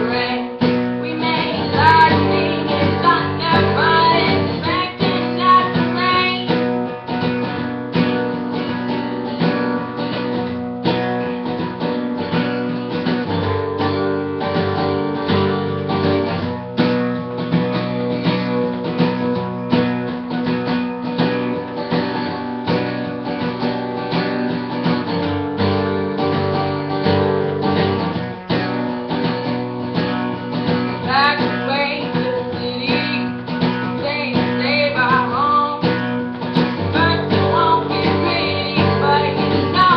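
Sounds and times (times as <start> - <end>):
woman singing: 0.0 - 7.6, 30.6 - 39.9
acoustic guitar strumming: 0.0 - 39.9.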